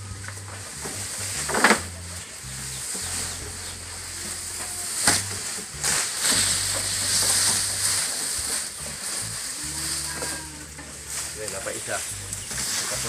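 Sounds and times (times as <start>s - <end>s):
leafy fodder rustling: 0.0s - 13.0s.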